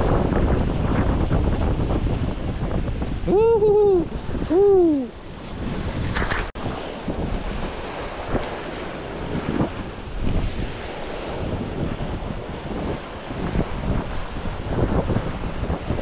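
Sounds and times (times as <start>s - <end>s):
sea waves: 0.0s - 16.0s
wind buffeting microphone: 0.0s - 16.0s.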